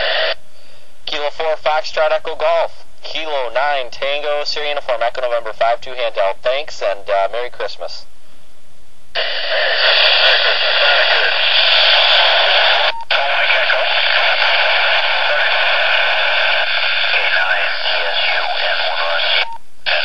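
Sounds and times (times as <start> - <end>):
radio static hiss: 0.0 - 8.3, 9.0 - 20.0.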